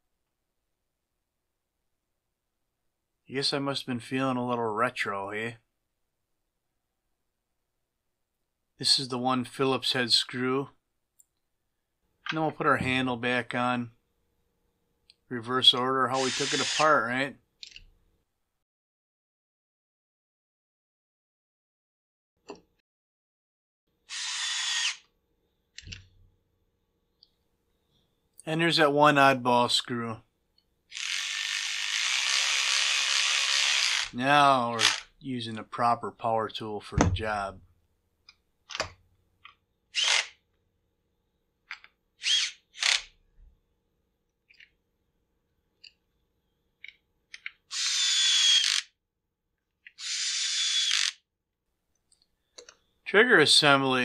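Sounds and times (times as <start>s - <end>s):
cordless screwdriver whine: 16.2s - 16.9s, 24.1s - 25.1s, 30.9s - 34.2s, 34.8s - 35.1s, 39.9s - 40.4s, 42.2s - 43.1s, 47.7s - 48.9s, 49.9s - 51.2s
cordless power driver running: 30.9s - 34.1s, 34.8s - 35.1s.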